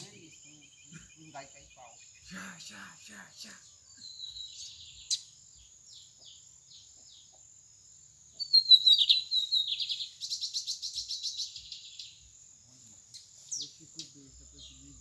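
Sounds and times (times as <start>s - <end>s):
bird chirps: 0.0s - 15.0s
bird whistled song and trill: 3.8s - 6.1s, 8.3s - 12.3s.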